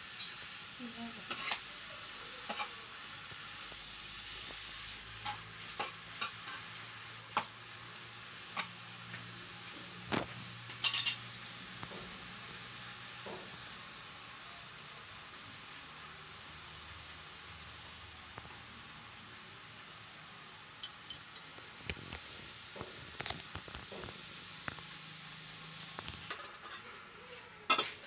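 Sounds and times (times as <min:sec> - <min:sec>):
low sizzle: 0:00.0 - 0:28.0
metal spoon clinking in pan: 0:00.2 - 0:00.6, 0:10.8 - 0:11.2, 0:20.8 - 0:21.5.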